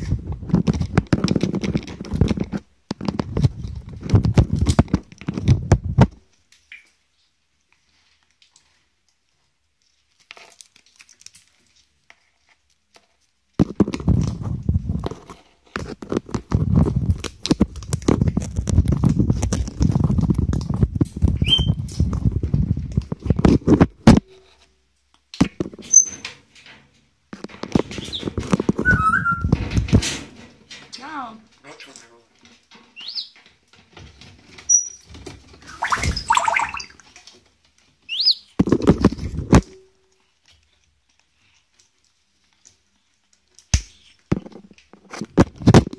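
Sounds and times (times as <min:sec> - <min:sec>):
parrot scraping and knocking: 0:00.0 - 0:06.2, 0:13.6 - 0:24.7, 0:25.4 - 0:31.0, 0:38.6 - 0:39.8
parrot squeaks: 0:21.4 - 0:21.8, 0:25.9 - 0:26.2, 0:28.0 - 0:29.6, 0:33.0 - 0:33.4, 0:34.7 - 0:37.0, 0:38.1 - 0:38.6.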